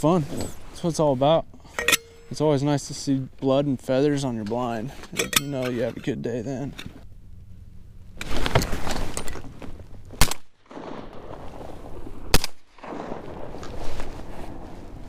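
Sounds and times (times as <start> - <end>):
shotgun shots: 12.3 - 13.2.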